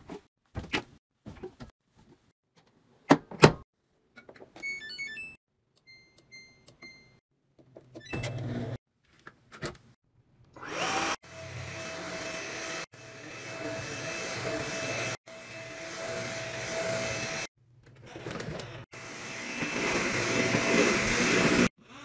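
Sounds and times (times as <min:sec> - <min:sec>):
stick vacuum motor whine: 0:10.6 - 0:17.5.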